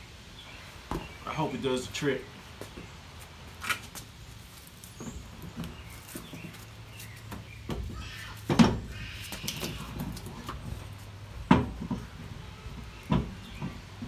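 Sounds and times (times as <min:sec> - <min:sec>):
wheel knocks and rubber scuffs: 0:02.5 - 0:14.0
heavy wheel thump: 0:07.2 - 0:14.0.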